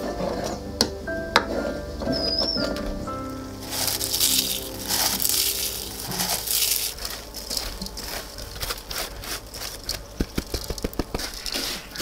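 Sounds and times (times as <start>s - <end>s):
fried pieces rattling into wok: 3.6s - 9.0s.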